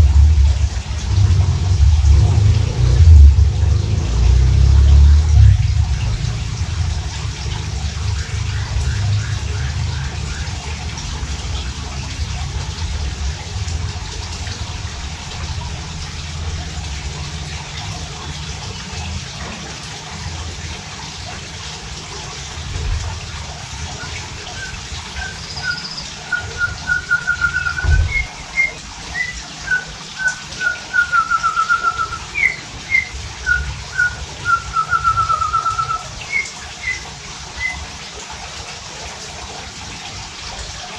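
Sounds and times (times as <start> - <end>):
low rumble: 0.0 - 19.2, 26.4 - 29.1
songbird whistling and trilling: 24.0 - 37.8.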